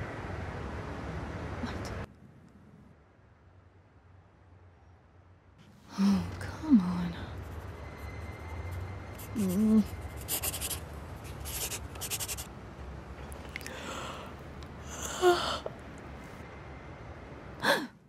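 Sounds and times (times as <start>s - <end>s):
low steady hum: 0.0s - 18.0s
scribbling on paper: 9.2s - 12.5s.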